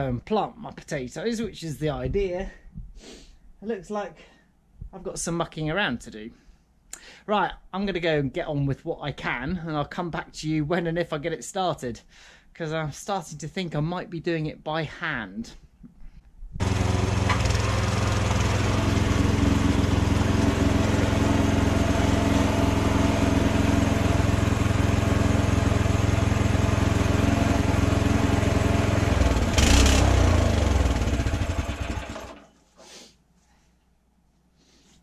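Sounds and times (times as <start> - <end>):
small petrol engine running: 16.6 - 32.5.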